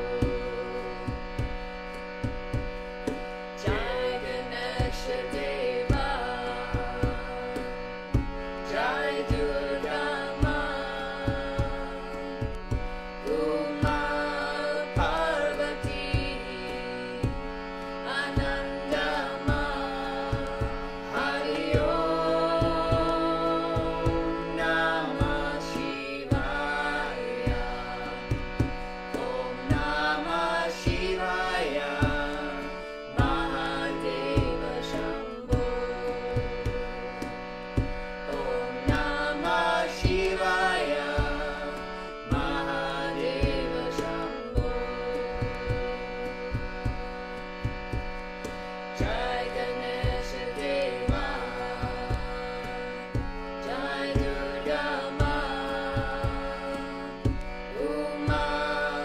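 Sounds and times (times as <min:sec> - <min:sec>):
harmonium chords: 0:00.0 - 0:59.0
woman and man chanting: 0:03.6 - 0:07.6, 0:08.6 - 0:12.3, 0:13.2 - 0:17.4, 0:18.0 - 0:28.2, 0:29.2 - 0:37.1, 0:38.3 - 0:45.9, 0:49.0 - 0:52.8, 0:53.6 - 0:59.0.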